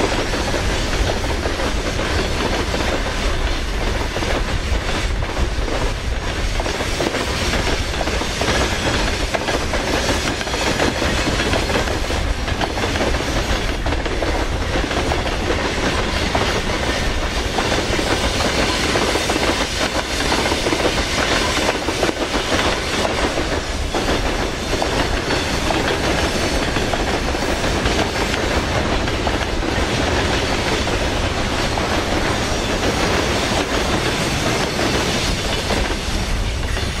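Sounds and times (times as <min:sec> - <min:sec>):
freight train rolling past: 0:00.0 - 0:37.0.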